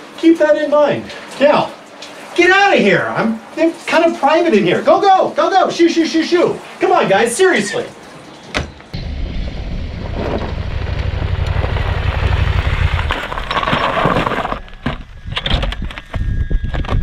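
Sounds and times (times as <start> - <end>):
motorcycle engine rumble: 9.0 - 16.6
tyres crunching on gravel: 9.7 - 15.3.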